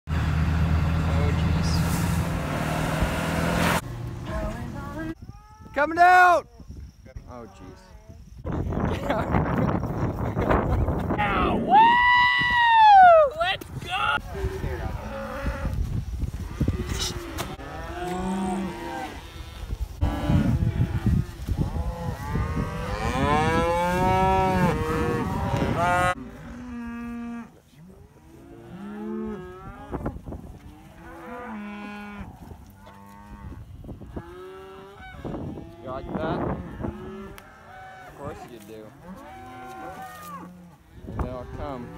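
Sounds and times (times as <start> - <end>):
cattle mooing: 16.5 - 27.5, 34.2 - 40.8.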